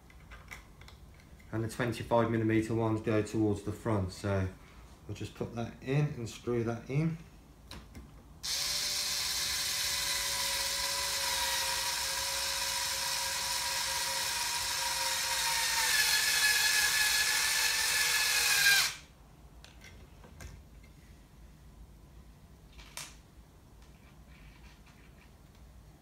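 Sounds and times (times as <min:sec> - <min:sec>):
cordless drill running: 0:08.4 - 0:19.1.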